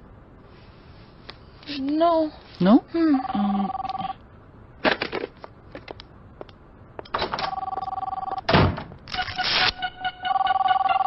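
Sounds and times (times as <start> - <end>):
phone ringing two-tone: 3.2 - 4.2, 7.5 - 8.4, 9.8 - 11.0.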